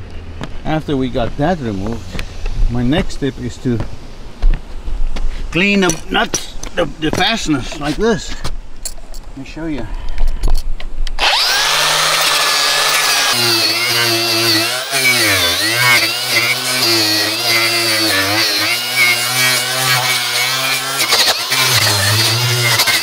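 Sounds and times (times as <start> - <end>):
angle grinder wire brush scrubbing metal: 11.2 - 23.0.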